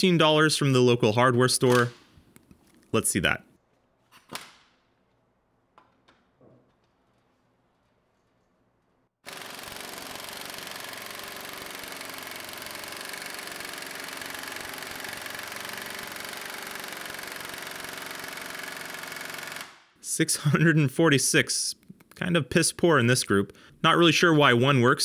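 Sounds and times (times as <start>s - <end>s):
impact wrench hammering: 9.2s - 19.8s.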